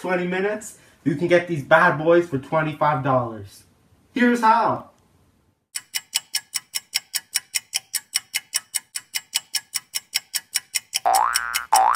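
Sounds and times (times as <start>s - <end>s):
clock ticking rapidly: 5.8s - 11.9s.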